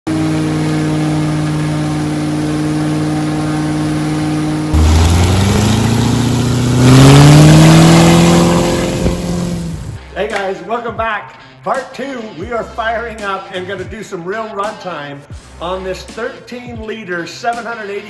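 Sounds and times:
piston aircraft engine and propeller: 0.1 - 10.0.

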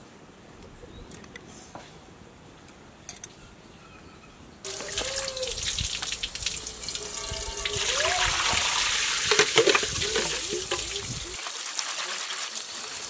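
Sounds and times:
tap water splashing into colander: 4.7 - 13.0.

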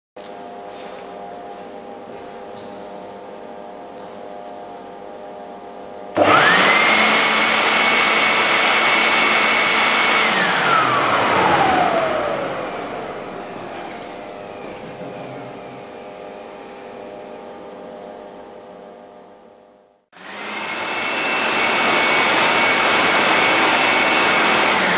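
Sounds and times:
leaf blower rushing and whining: 6.2 - 15.9, 20.2 - 24.9
steady hum: 10.6 - 19.6.

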